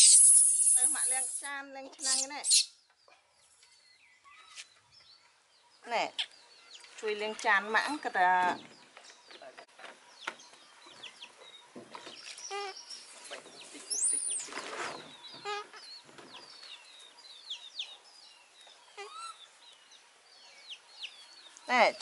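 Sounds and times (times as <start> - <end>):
high squeal: 0.0 - 1.4.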